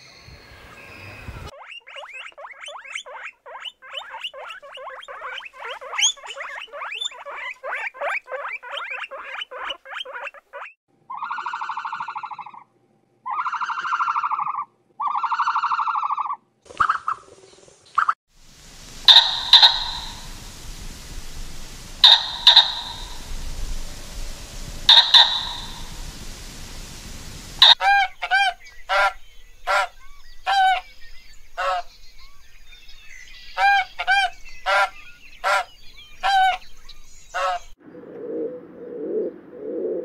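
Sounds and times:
squeaky animal chirps: 1.5 - 12.6, 18.8 - 20.4, 21.9 - 24.0, 24.6 - 26.0, 27.6 - 29.9
long buzzy animal calls: 18.6 - 29.9.

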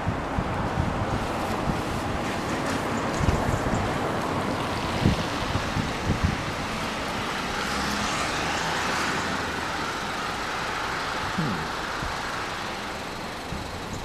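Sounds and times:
wind buffeting microphone: 0.0 - 8.4
car tyres hissing on wet road: 0.5 - 14.0.

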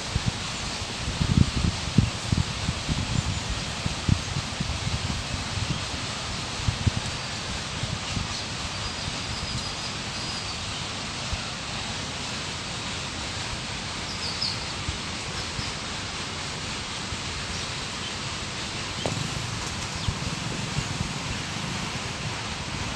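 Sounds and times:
rustling leaves: 0.0 - 22.9
wind: 0.0 - 22.9.

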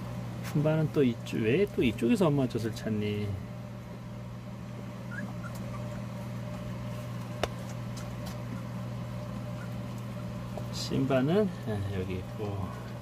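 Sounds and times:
steady low hum: 0.0 - 13.0
puppies whimpering and squeaking: 4.8 - 6.9, 7.6 - 10.1.

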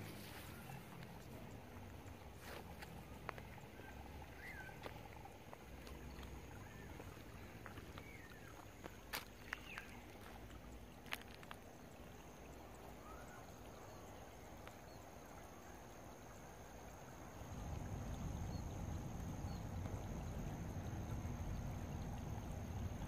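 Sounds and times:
faint bird chirps: 0.0 - 10.4, 12.0 - 16.0.

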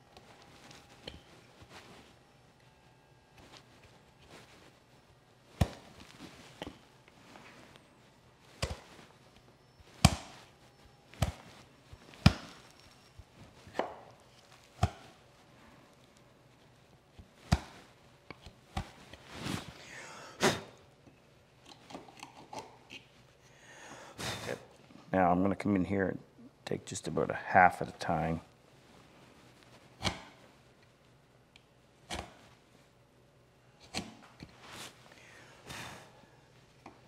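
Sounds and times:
chisel chopping into wood: 10.0 - 10.3, 13.7 - 14.1.

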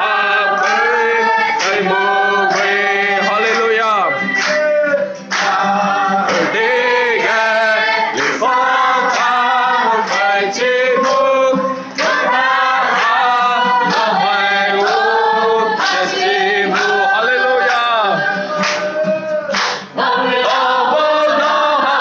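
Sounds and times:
acoustic guitar strumming: 0.0 - 22.0
congregation singing: 0.0 - 22.0.

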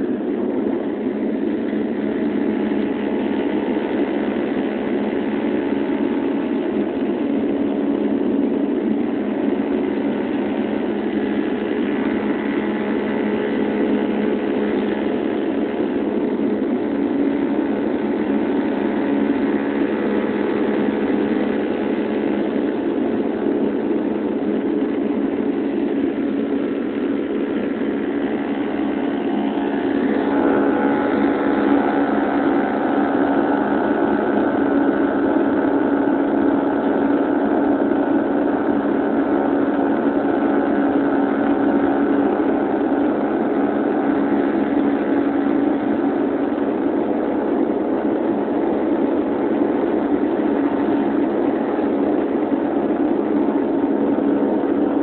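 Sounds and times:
propeller plane cabin drone: 0.0 - 55.0.

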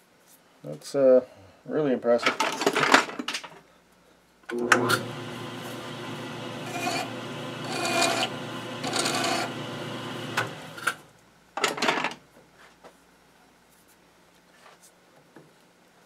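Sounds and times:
metal lathe running: 4.5 - 11.0
scraping against spinning metal: 6.6 - 9.6.

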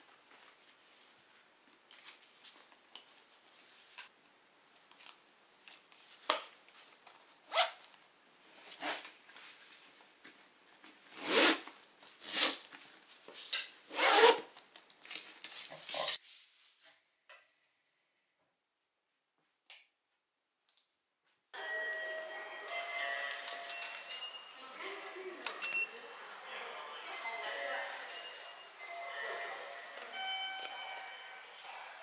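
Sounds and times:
zipper pulls: 7.4 - 7.8, 11.1 - 12.6, 13.9 - 14.5.

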